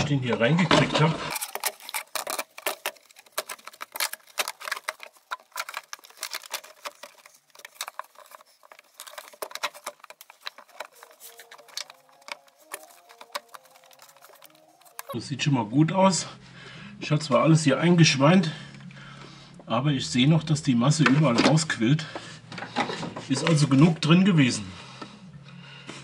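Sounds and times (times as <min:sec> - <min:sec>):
plastic housing clicking and rattling: 0:01.3 - 0:15.2.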